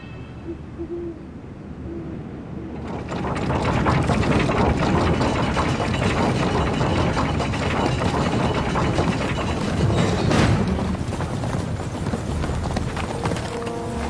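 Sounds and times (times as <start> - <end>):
chains clattering through winch: 2.8 - 10.6.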